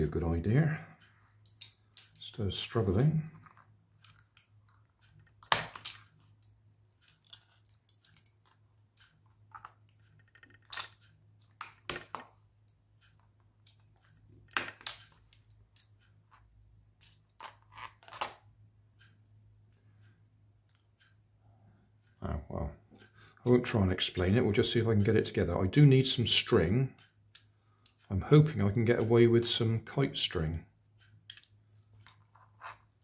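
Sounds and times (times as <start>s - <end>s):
knife snapping plastic parts: 5.4s - 6.1s.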